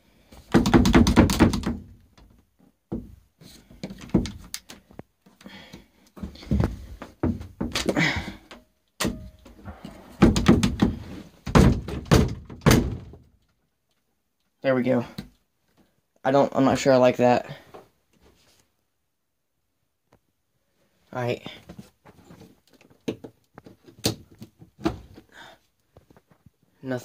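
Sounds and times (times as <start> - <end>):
wooden door rattling in frame: 0.5 - 2.0, 10.2 - 13.2.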